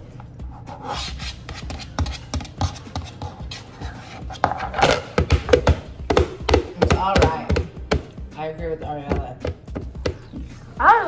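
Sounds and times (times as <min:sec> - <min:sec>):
sharp taps on plastic: 0:04.8 - 0:08.1.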